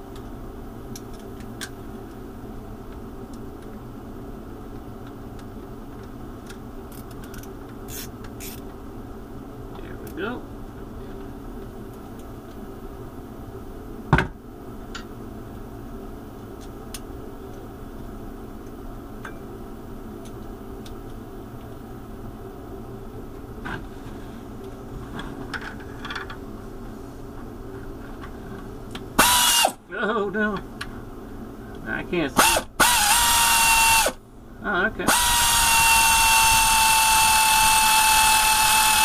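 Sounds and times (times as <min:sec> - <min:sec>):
background hum: 0:00.0 - 0:39.0
power tool burst: 0:29.2 - 0:29.8, 0:32.4 - 0:34.2, 0:35.1 - 0:39.0.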